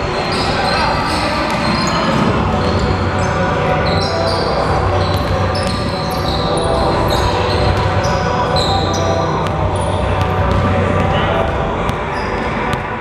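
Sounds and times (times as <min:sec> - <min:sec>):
sneakers squeaking on gym floor: 0:00.0 - 0:13.0
basketball bouncing: 0:09.4 - 0:12.9.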